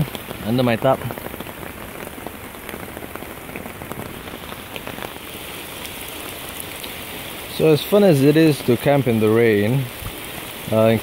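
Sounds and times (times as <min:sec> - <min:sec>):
drops ticking: 0:00.0 - 0:05.2
rain falling on a tarp: 0:00.0 - 0:11.0.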